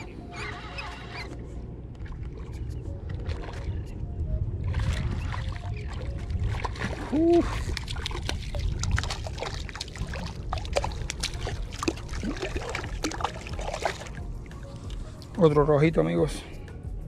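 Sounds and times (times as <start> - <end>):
wind rumble: 0.0 - 17.0
fish splashing in water: 4.7 - 14.2
water trickling and dripping: 4.8 - 15.5
person humming: 7.1 - 7.6.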